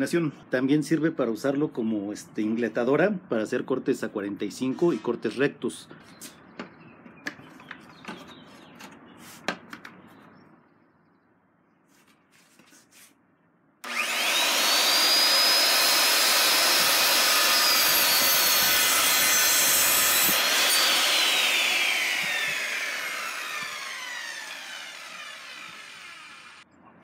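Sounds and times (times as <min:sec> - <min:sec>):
circular saw cutting wood: 0:13.8 - 0:26.6.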